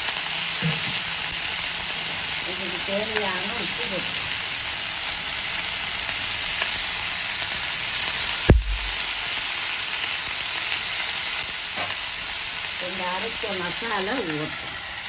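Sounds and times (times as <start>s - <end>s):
food frying in hot oil: 0.0s - 15.0s
sharp knock with low thud: 8.5s - 9.0s.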